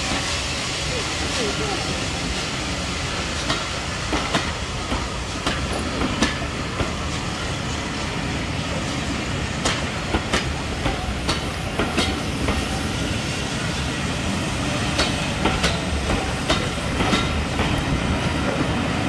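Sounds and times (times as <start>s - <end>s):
train coaches rumbling past: 0.0s - 19.0s
wheels clacking over rail joints: 3.4s - 7.1s, 9.6s - 12.8s, 14.9s - 18.7s.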